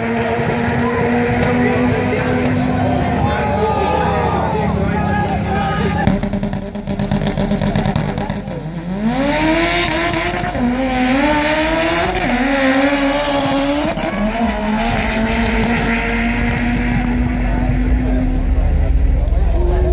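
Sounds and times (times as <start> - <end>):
drag car accelerating: 0.0 - 19.9.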